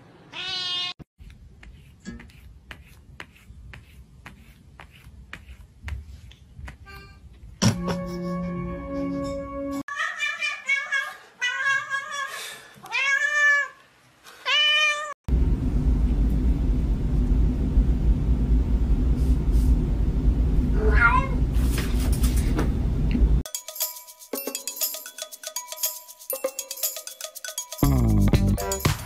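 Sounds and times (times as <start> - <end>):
cat meowing: 0.3 - 1.0, 20.8 - 21.4
steady low rumble: 15.3 - 20.8.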